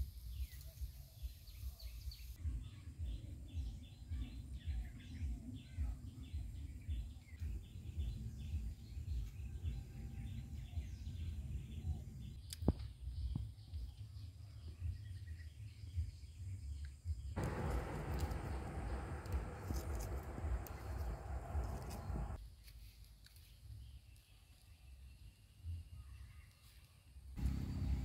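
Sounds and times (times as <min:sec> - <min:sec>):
birds chirping: 0:17.2 - 0:22.4, 0:27.4 - 0:28.0
low outdoor rumble: 0:17.3 - 0:22.4, 0:27.4 - 0:28.0.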